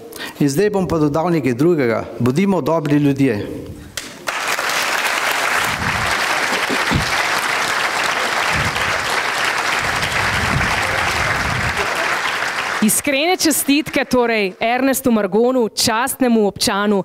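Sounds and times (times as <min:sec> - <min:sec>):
audience applauding: 0:04.2 - 0:14.8.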